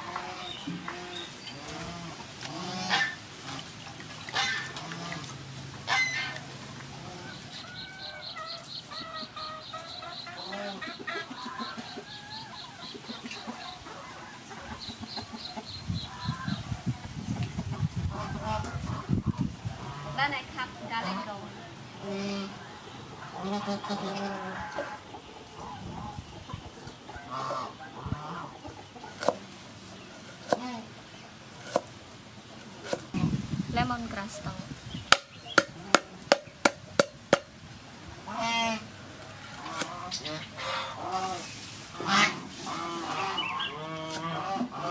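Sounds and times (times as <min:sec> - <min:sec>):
chickens clucking: 0:00.0 - 0:33.4, 0:34.4 - 0:44.9
cleaver chopping on wooden board: 0:30.4 - 0:30.7, 0:31.6 - 0:31.9, 0:35.1 - 0:37.5.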